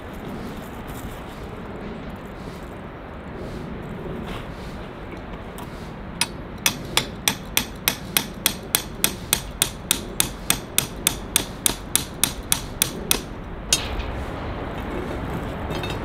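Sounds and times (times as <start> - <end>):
hammer striking tent peg: 6.2 - 13.9.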